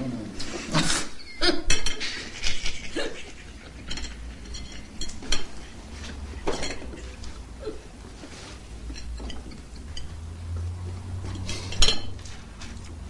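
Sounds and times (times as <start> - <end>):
cutlery clinking on plates: 1.6 - 7.4, 8.8 - 12.9.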